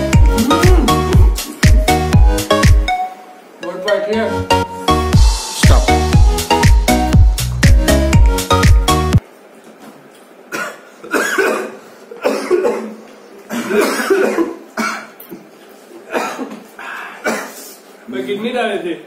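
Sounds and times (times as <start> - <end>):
person coughing hard: 10.5 - 15.2, 16.1 - 16.6, 17.2 - 17.7.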